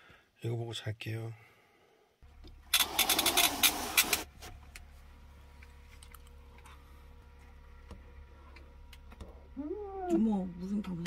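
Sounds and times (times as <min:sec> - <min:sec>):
low hum: 0:02.2 - 0:11.0.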